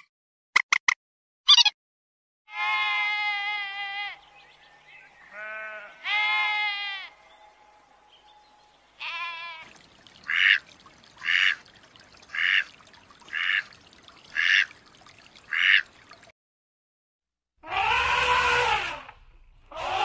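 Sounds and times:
sheep bleating: 2.5s - 4.3s, 5.2s - 7.3s, 9.0s - 9.7s, 17.6s - 18.8s.

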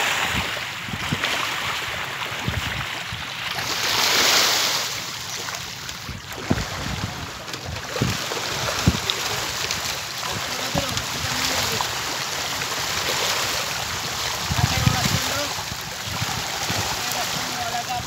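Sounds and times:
wind buffeting microphone: 0.0s - 3.9s, 5.8s - 12.1s, 13.7s - 18.0s
fish splashing: 0.0s - 18.0s
water washing around cage: 0.0s - 18.0s.

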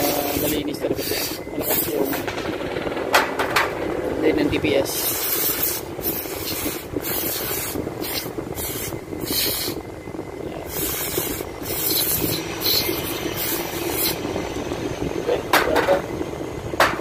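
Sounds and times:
aerosol spray hissing: 0.1s - 1.4s, 5.0s - 9.8s, 10.7s - 14.2s.

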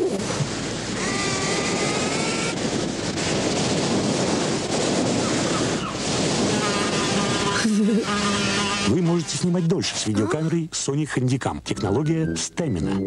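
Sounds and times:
ocean waves breaking: 0.0s - 9.4s.

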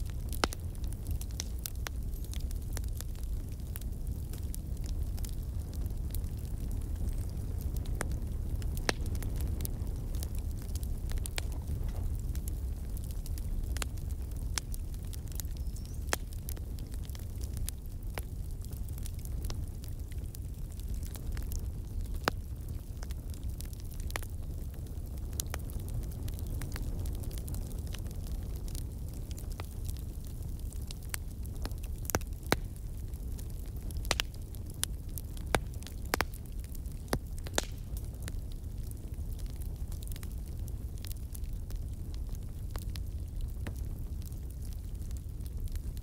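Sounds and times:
steady low rumble: 0.0s - 15.4s
fire crackling and popping: 0.0s - 46.0s.

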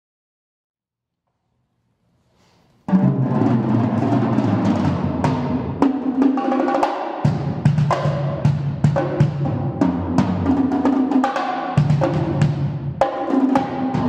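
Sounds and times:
drum set played with sticks: 2.8s - 14.0s.

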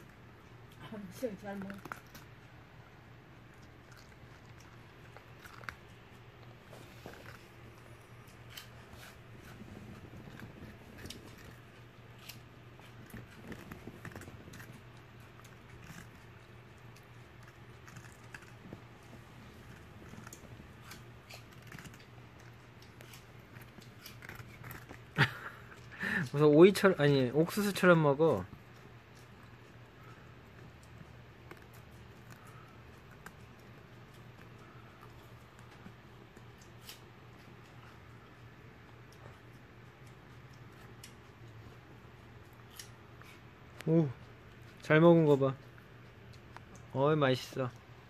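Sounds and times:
dog chewing cucumber: 0.0s - 48.0s.

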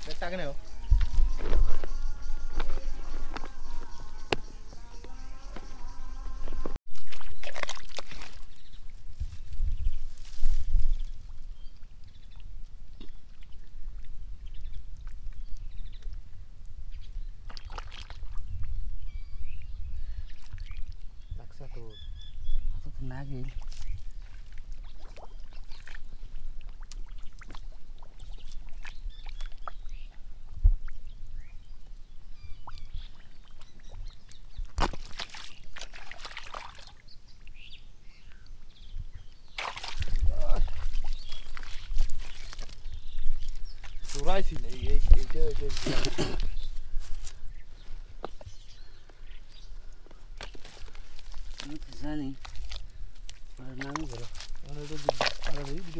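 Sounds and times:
wet sloshing: 6.9s - 8.6s, 34.7s - 37.0s, 39.6s - 42.8s
hands squelching in wet mud: 6.9s - 9.0s, 17.4s - 18.5s, 23.5s - 29.9s, 32.6s - 37.1s, 39.5s - 47.4s, 50.4s - 55.9s.

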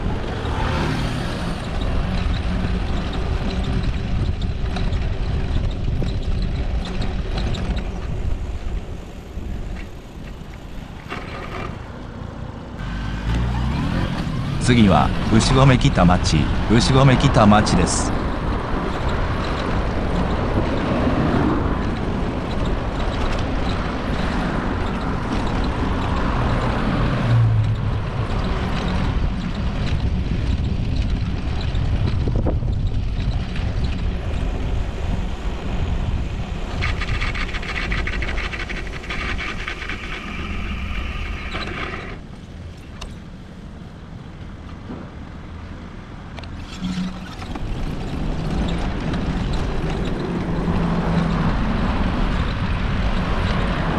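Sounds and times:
road rumble: 0.0s - 53.9s
street traffic: 0.0s - 53.9s
wind noise: 0.0s - 53.9s.

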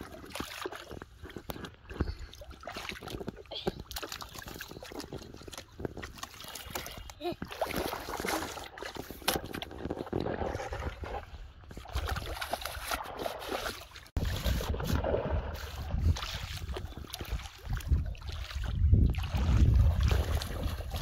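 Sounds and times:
water splashing and sloshing: 0.0s - 21.0s
wind rumbling on microphone: 0.8s - 7.1s, 14.1s - 21.0s.

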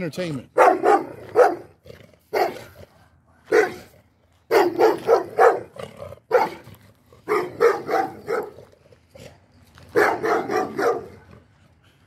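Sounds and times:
dog barking: 0.6s - 1.7s, 2.3s - 2.7s, 3.5s - 3.9s, 4.5s - 5.7s, 6.3s - 6.6s, 7.3s - 8.6s, 9.9s - 11.3s.

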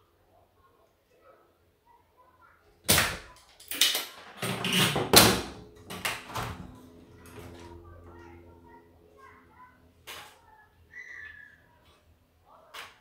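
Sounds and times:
tools knocking and scraping: 4.4s - 7.7s.

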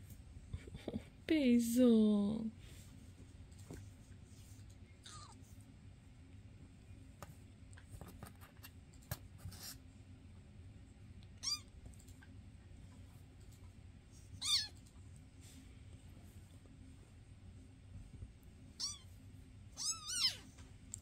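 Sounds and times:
kittens scratching and rustling: 2.6s - 5.8s, 7.1s - 10.0s, 11.4s - 21.0s
kitten mewing: 5.0s - 5.4s, 11.4s - 11.7s, 14.4s - 14.8s, 18.8s - 19.1s, 19.8s - 20.5s.

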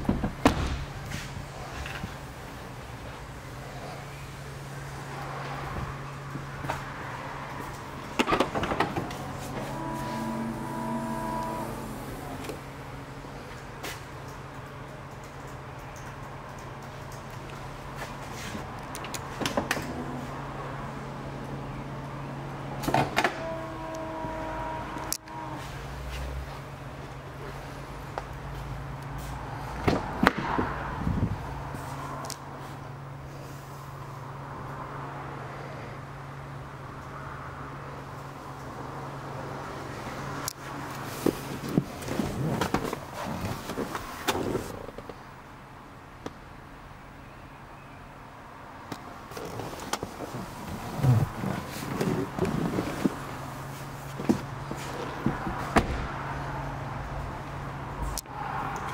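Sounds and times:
steady tone: 8.9s - 13.1s.

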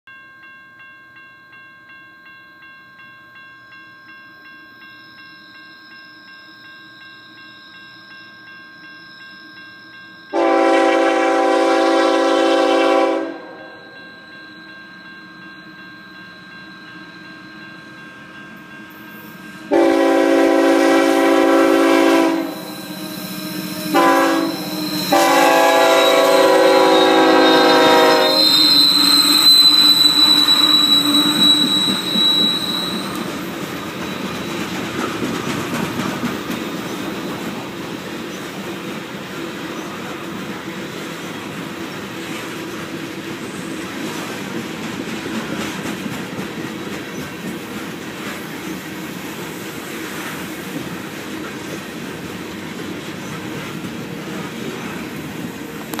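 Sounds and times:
locomotive horn: 10.3s - 13.7s, 19.7s - 33.2s
locomotive engine passing: 19.3s - 56.0s
high wheel squeal: 22.3s - 35.0s
wheels clicking over rail joints: 29.9s - 40.6s.

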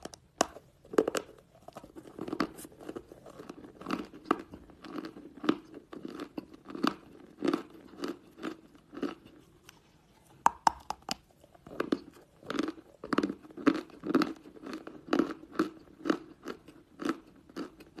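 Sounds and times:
person chewing chalk crunches: 0.0s - 9.8s, 10.5s - 18.0s.

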